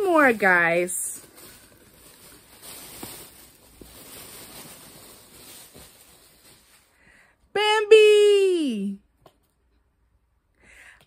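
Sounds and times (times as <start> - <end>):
rustling handling noise: 0.0 - 7.1.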